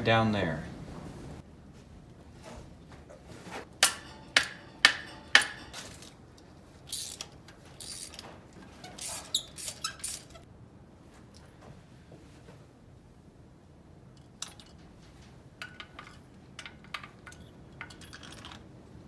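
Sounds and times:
metallic clinks and scraping: 3.8 - 10.4, 14.2 - 18.7
socket wrench squeaks: 6.9 - 10.4.

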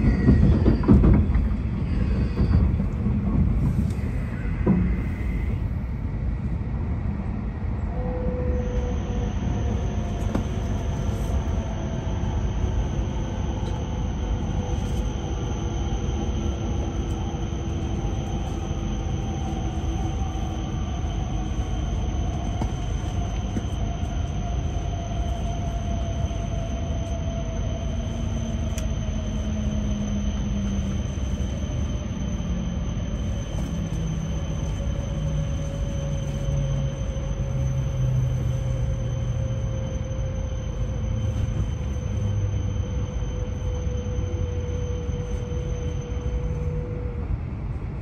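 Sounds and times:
train inverter and motors whining: 0.0 - 48.0
wheels rumbling on rail: 0.0 - 48.0.

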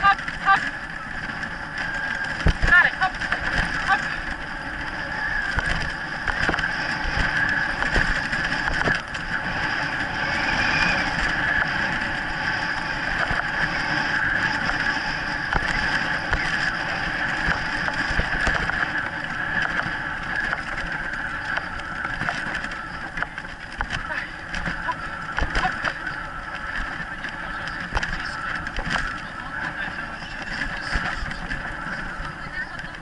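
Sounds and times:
cart wheels rattling rumble: 0.0 - 33.0
knocks from bumps: 2.4 - 3.9.

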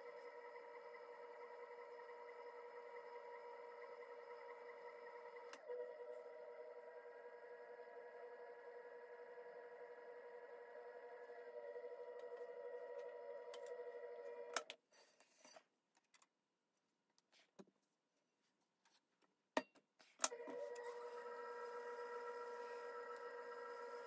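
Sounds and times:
potter's wheel motor whining: 0.0 - 14.7, 20.3 - 24.0.

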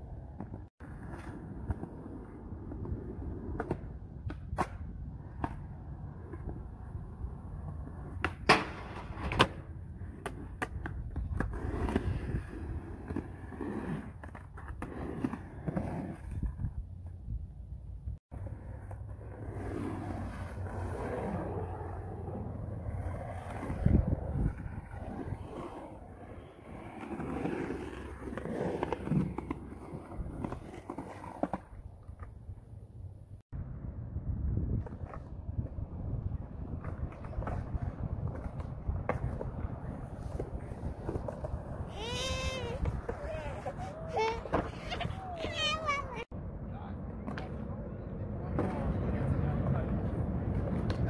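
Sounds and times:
skateboard wheels rolling on concrete: 0.0 - 51.0
skateboard clacking on concrete: 36.8 - 46.3.

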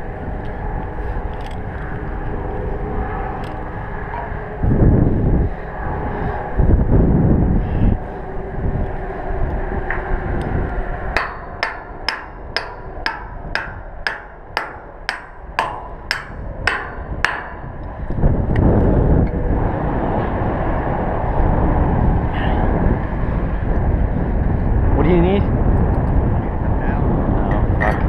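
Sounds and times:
wind buffeting microphone: 0.0 - 28.0
hammer striking steel: 11.2 - 17.8.

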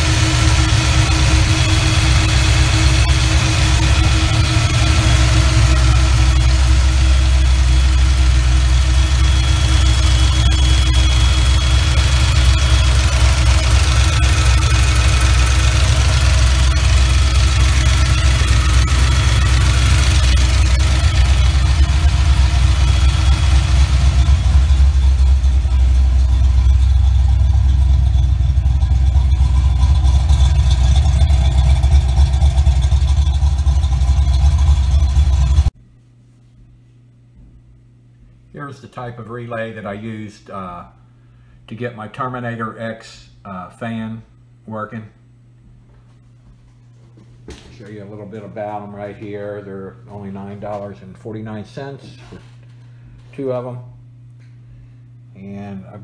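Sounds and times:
car engine idling: 0.0 - 35.8.

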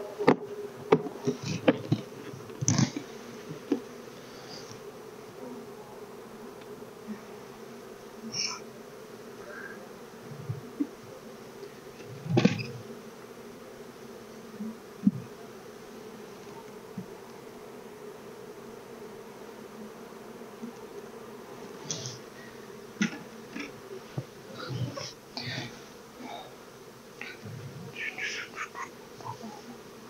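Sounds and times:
honeybees buzzing: 0.0 - 30.0
wooden hive frames knocking: 0.2 - 3.9, 12.0 - 12.9, 22.9 - 25.0.

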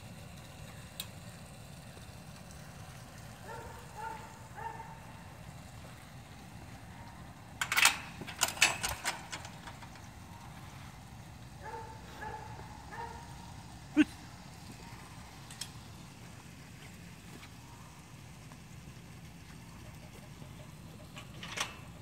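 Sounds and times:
chain-link gate rattling: 6.8 - 13.6, 19.8 - 22.0.

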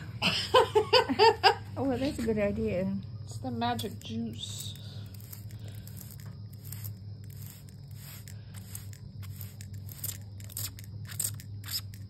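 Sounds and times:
steady low hum: 0.0 - 12.0
spray bottle spritzing: 4.6 - 12.0.

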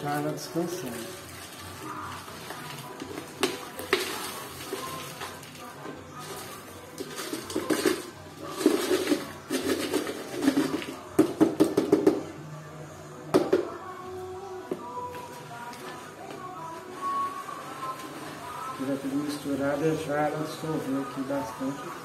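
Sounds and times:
granules rattling from plastic jar: 7.0 - 11.0.

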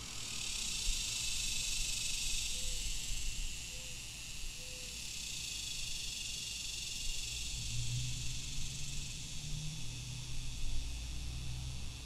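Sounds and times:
cicadas droning: 0.0 - 12.0
road traffic rumble: 7.3 - 12.0.

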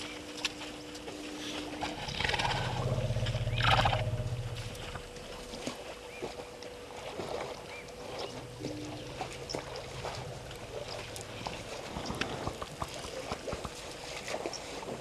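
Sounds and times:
steady outdoor hiss: 0.0 - 15.0
low pulsing animal call: 1.1 - 6.6, 7.7 - 13.3.

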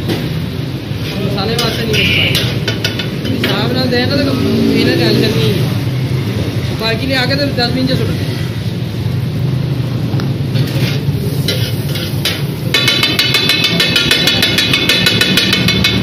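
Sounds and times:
metal spatula scraping griddle: 1.0 - 3.6, 10.5 - 16.0.

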